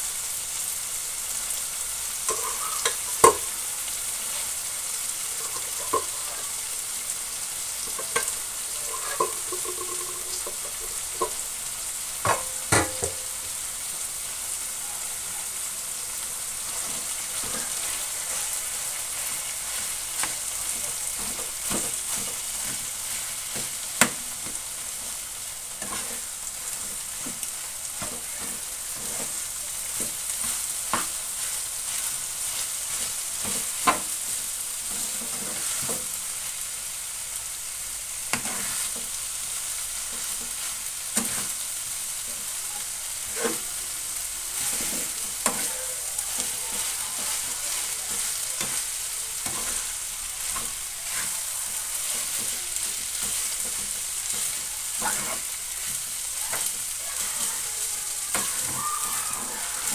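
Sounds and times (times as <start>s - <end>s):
rice sizzling in frying pan: 0.0s - 59.9s
metal spatula scraping pan: 2.3s - 3.5s, 5.3s - 6.5s, 7.8s - 11.4s, 25.8s - 27.4s, 43.3s - 43.8s, 44.5s - 51.4s, 52.1s - 57.6s.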